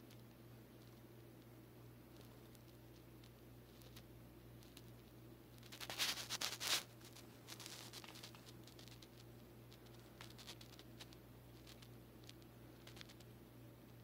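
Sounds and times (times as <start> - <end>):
cat claws scratching a sheet: 5.6 - 9.2.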